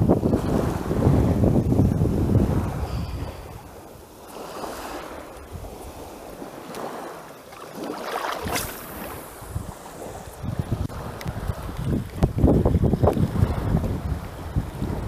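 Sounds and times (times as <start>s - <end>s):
wind buffeting microphone: 0.0s - 7.2s, 7.8s - 15.0s
small waves lapping: 1.8s - 15.0s
brief swish: 8.3s - 9.2s.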